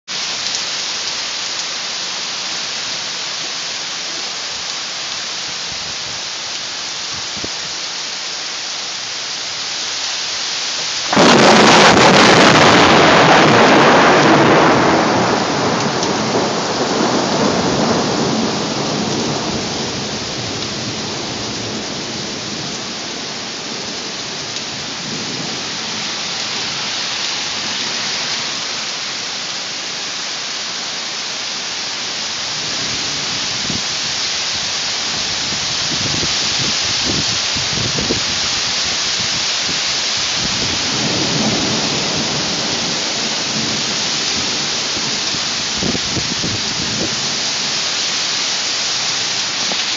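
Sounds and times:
heavy rain pouring: 0:00.0 - 0:49.9
loud thunderclap rumbling: 0:11.1 - 0:22.8, 0:40.4 - 0:47.4.

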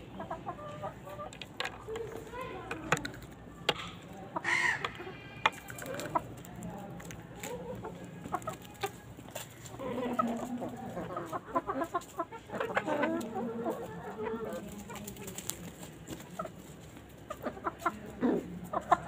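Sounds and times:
hens clucking: 0:00.0 - 0:19.0
chicken squawk: 0:04.4 - 0:06.3.

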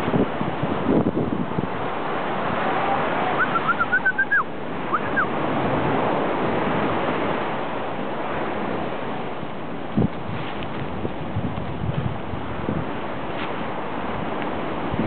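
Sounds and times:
ocean surf on beach: 0:00.0 - 0:15.0
short high chirps: 0:03.4 - 0:05.3.

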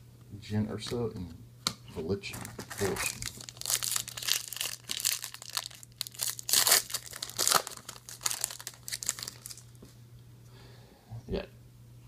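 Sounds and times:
foil wrapper crinkling: 0:02.3 - 0:09.7.

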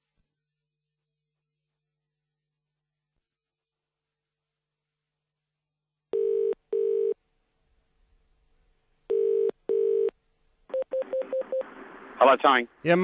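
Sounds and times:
telephone ringback tone: 0:06.1 - 0:07.2, 0:09.1 - 0:10.1.

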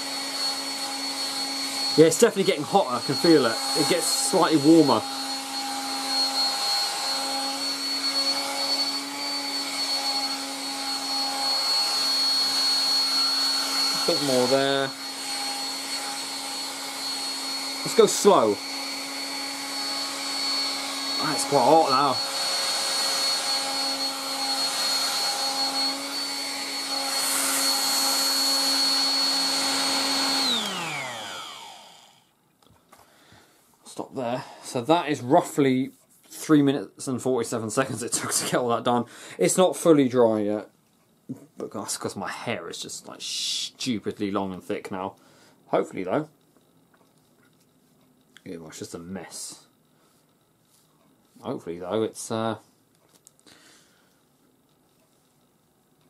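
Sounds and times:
motor winding down: 0:00.0 - 0:32.3
hairdryer running: 0:00.0 - 0:32.4.

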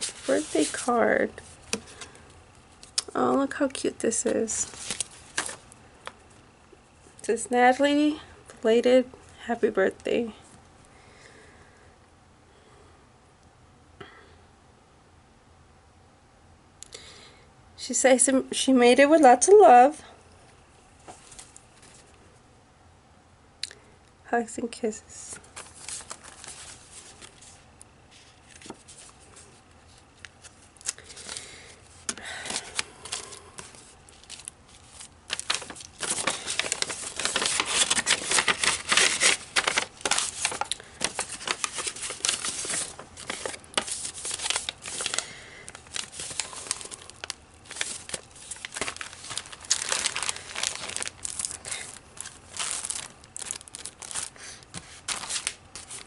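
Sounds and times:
packaging crinkling and rustling: 0:00.0 - 0:06.4, 0:25.3 - 0:56.0.

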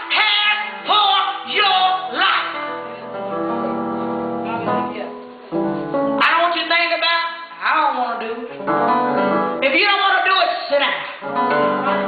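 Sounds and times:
woman singing into microphone: 0:00.0 - 0:03.0, 0:06.2 - 0:08.6, 0:09.6 - 0:12.0
keyboard accompaniment: 0:00.0 - 0:06.3, 0:08.6 - 0:09.8, 0:11.2 - 0:12.0.

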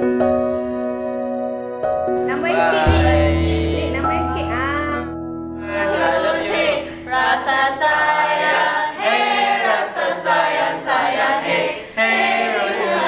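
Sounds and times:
group singing unaccompanied: 0:02.4 - 0:04.5, 0:05.6 - 0:13.0.

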